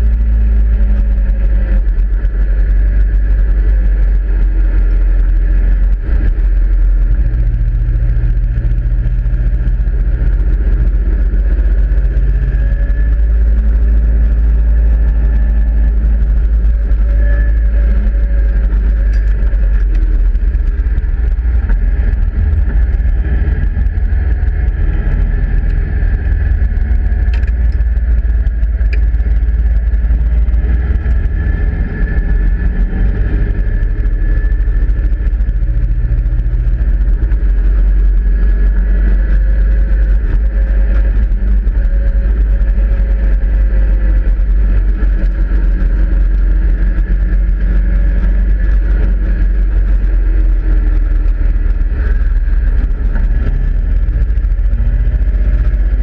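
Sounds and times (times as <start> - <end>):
race car engine running hard: 0.0 - 56.0
wind buffeting on microphone: 0.0 - 56.0.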